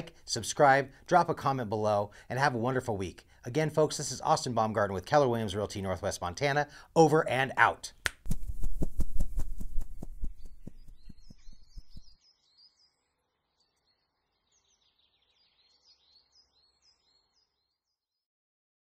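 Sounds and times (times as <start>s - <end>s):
faint bird chirps: 10.2s - 18.2s.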